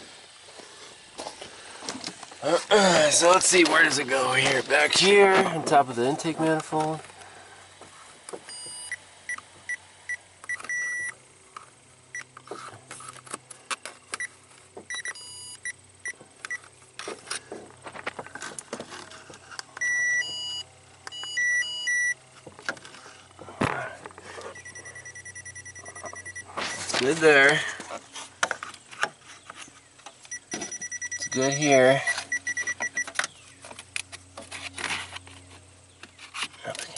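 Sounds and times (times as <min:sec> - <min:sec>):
electronic receiver beeping: 0:08.5 - 0:11.2, 0:14.9 - 0:16.7, 0:19.8 - 0:22.2, 0:24.6 - 0:27.1, 0:30.3 - 0:33.2.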